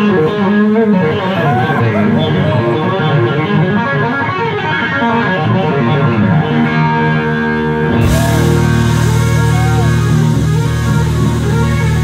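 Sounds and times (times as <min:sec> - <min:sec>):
bass guitar: 0:00.0 - 0:12.0
electric guitar bending notes: 0:00.0 - 0:12.0
drums: 0:07.8 - 0:12.0.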